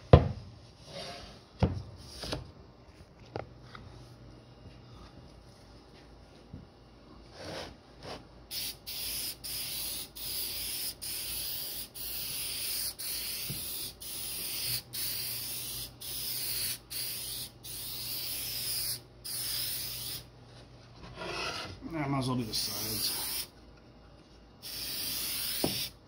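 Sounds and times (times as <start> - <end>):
aerosol spray can hissing: 8.5 - 20.3, 22.6 - 23.5, 24.6 - 26.0.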